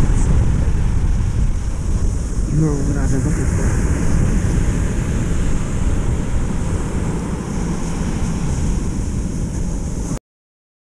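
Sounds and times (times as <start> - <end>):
wind buffeting microphone: 0.0 - 10.2.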